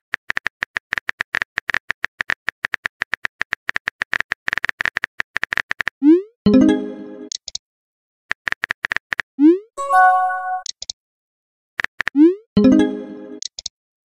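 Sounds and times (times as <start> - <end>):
short pitched tone: 9.8 - 10.7.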